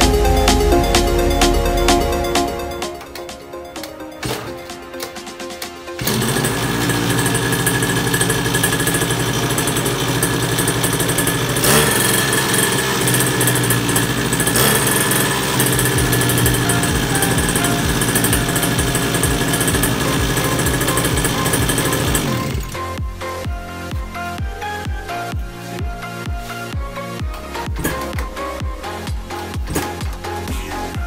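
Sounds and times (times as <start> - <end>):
small engine running buzzy: 6.0 - 22.9.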